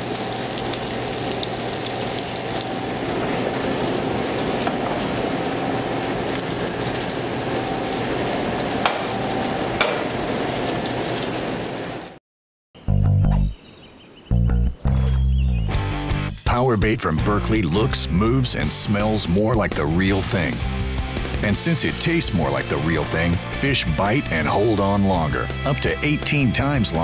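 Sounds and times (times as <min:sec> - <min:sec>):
fish sizzling in a pan: 0:00.0 - 0:12.2.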